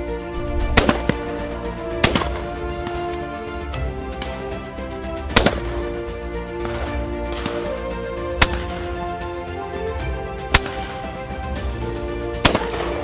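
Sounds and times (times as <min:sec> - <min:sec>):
background music with held notes: 0:00.0 - 0:13.0
loud shotgun shots: 0:00.7 - 0:01.4, 0:05.3 - 0:05.8, 0:12.4 - 0:13.0.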